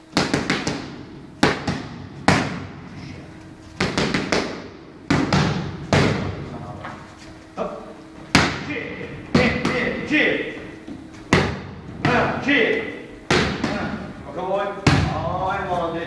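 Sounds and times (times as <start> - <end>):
boxing gloves smacking pads: 0.1 - 2.8, 3.8 - 6.4, 9.3 - 10.0, 11.3 - 12.3, 13.3 - 14.0.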